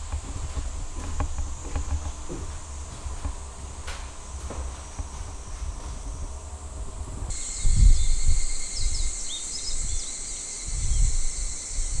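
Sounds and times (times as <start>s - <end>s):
insects trilling: 0.0s - 12.0s
wind rumbling on microphone: 0.0s - 12.0s
birds chirping: 7.3s - 12.0s.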